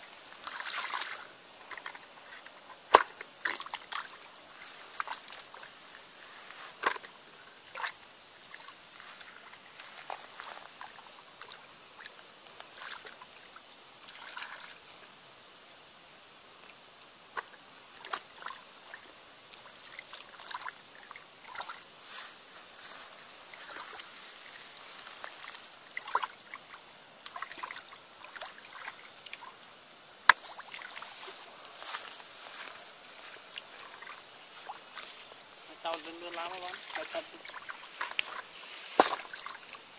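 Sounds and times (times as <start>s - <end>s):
small splashes: 0.3s - 5.8s, 7.7s - 14.9s, 17.4s - 21.9s, 23.5s - 29.6s, 30.3s - 31.4s, 33.2s - 39.9s
hands sloshing in muddy water: 0.4s - 1.2s, 25.2s - 26.4s, 35.9s - 39.7s.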